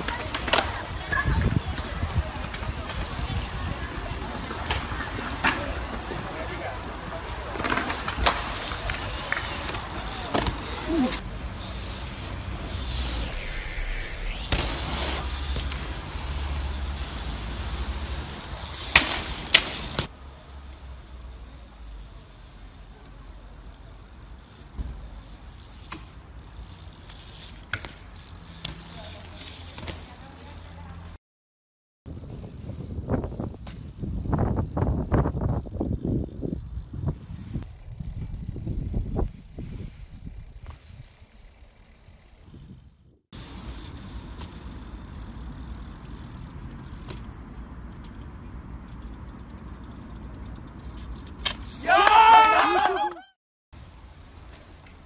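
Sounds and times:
bike freewheel hub ticking: 7.7s - 13.4s, 14.5s - 20.1s, 21.7s - 30.9s, 33.8s - 42.4s, 43.4s - 47.2s, 47.8s - 52.5s
bike landing thump: 14.3s - 16.0s, 18.8s - 20.1s, 24.7s - 25.1s.

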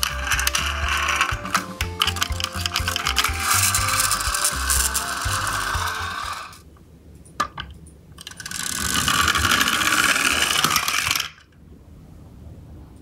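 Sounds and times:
toy truck gears whirring: 0.0s - 6.6s, 8.2s - 11.4s.

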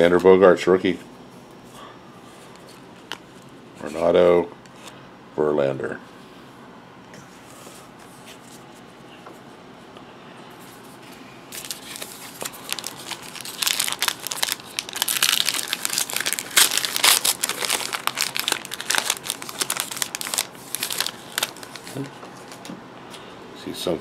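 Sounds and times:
wrapper crinkling and tearing: 11.5s - 22.7s.

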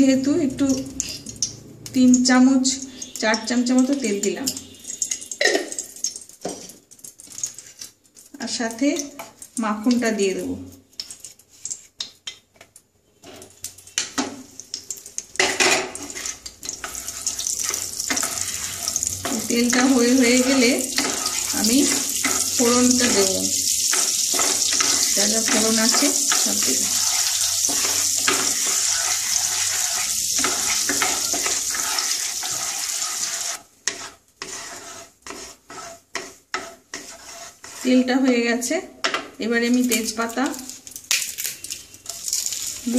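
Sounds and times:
butter sizzling: 0.5s - 42.9s
spatula scraping glass bowl: 16.1s - 38.1s
spatula clacking against pan: 23.8s - 37.8s.

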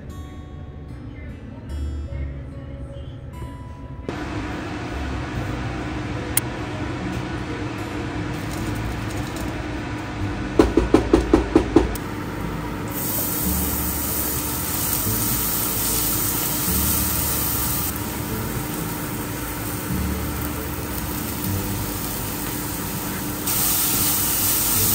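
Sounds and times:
garlic sizzling in hot oil: 12.8s - 24.9s.

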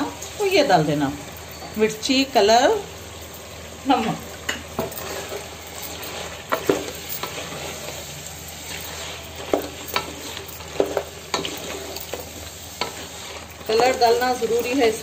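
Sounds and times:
chicken sizzling in oil: 0.0s - 15.0s
wooden spatula scraping a pot: 4.7s - 15.0s.

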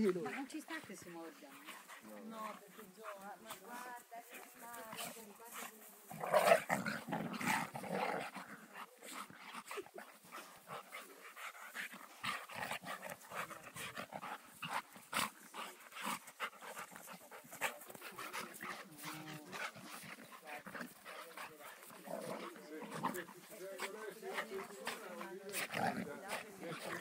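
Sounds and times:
dogs growling: 0.0s - 27.0s
dogs panting: 0.0s - 27.0s
scuffling noises: 0.0s - 27.0s.

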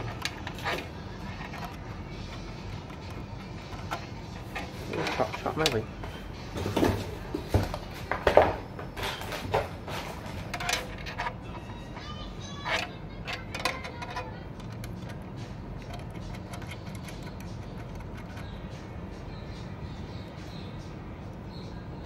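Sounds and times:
cable connectors clicking and rattling: 0.0s - 5.9s, 9.0s - 18.6s
light handling noise: 0.0s - 18.8s.

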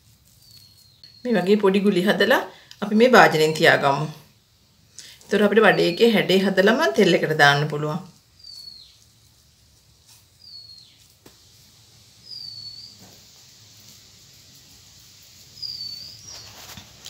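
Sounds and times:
bird whistling: 12.2s - 13.0s, 15.6s - 16.5s.

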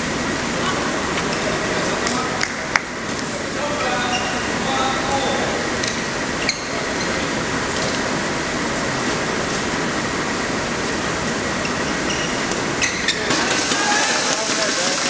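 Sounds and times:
crowd and room noise hiss: 0.0s - 15.0s.

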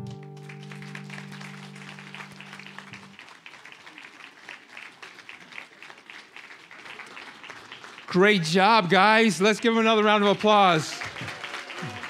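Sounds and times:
held chord of song: 0.0s - 3.2s
congregation applauding: 0.0s - 12.0s.

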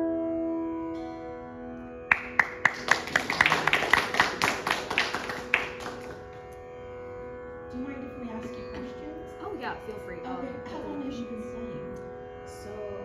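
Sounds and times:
electronic tambura drone: 0.0s - 13.0s
small audience applauding: 2.1s - 6.6s.

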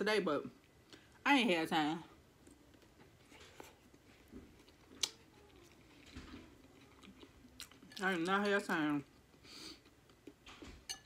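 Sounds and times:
faint chewing: 2.4s - 10.6s.

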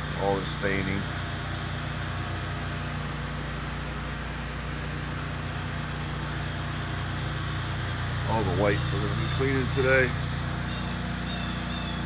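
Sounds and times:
engine running with low hum: 0.0s - 12.0s.

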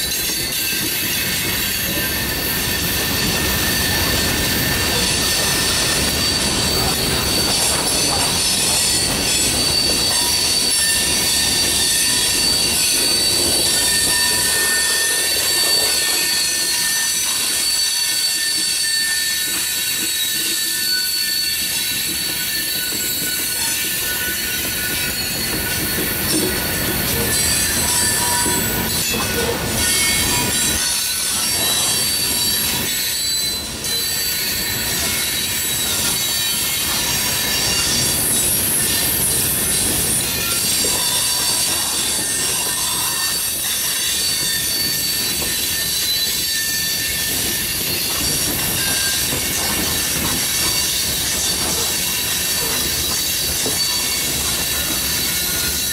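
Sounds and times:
steel wheels squealing: 0.0s - 55.9s
train wheels rolling on rail: 0.0s - 55.9s.

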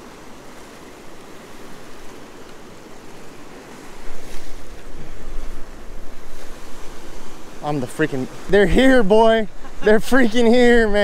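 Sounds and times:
wind rumbling on microphone: 0.0s - 7.6s
surf washing against rocks: 0.0s - 11.0s.

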